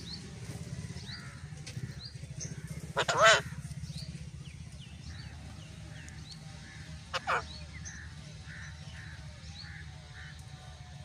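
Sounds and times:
low steady hum: 0.0s - 11.0s
parakeet squawk: 3.0s - 3.6s, 7.1s - 7.5s.

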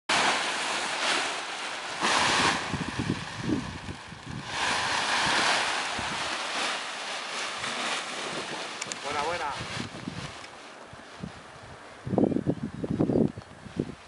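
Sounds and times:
wind buffeting microphone: 0.1s - 14.0s.

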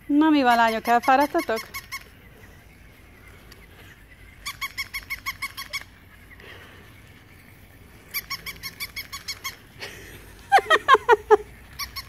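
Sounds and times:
toy puppy electronic yips: 0.5s - 2.1s, 4.4s - 5.9s, 8.1s - 9.6s, 11.7s - 12.0s.

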